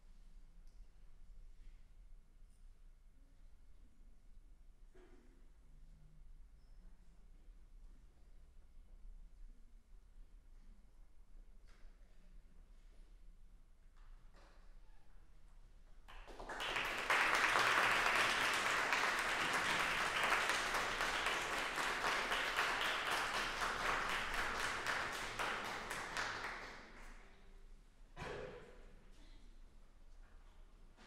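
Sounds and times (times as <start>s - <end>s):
audience applauding: 16.1s - 27.2s.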